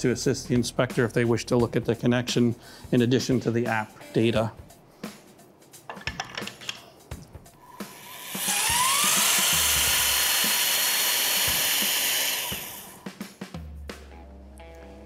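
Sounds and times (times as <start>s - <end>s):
torque tool motor whining: 7.7s - 13.0s.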